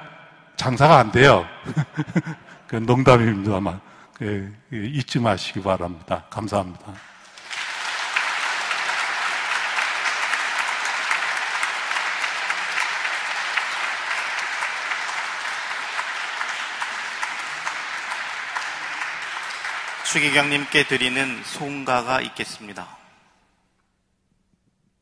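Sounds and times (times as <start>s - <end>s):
crowd applauding: 7.0s - 22.5s.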